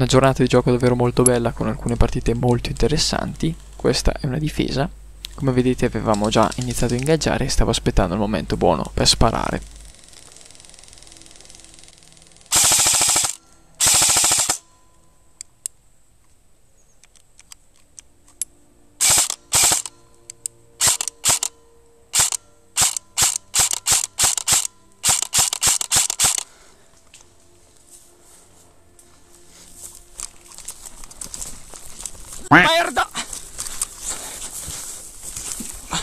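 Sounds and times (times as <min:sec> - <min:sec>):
airsoft rifles firing: 0:12.5 - 0:14.6, 0:19.0 - 0:19.9, 0:20.8 - 0:21.5, 0:22.1 - 0:26.5.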